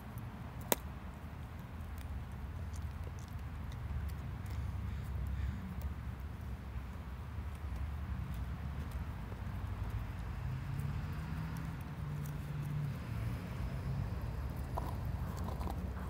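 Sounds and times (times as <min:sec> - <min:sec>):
dog teeth scraping bone: 0:02.3 - 0:04.7, 0:14.4 - 0:16.0.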